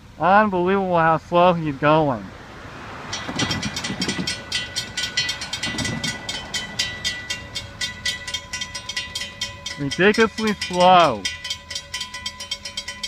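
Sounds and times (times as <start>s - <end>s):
car engine passing: 1.2s - 9.7s
crossing warning bell ringing: 2.8s - 13.0s.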